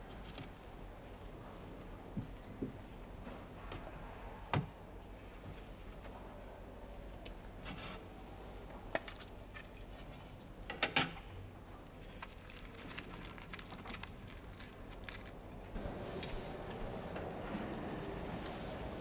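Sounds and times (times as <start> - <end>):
foil crinkling: 12.0 - 15.5.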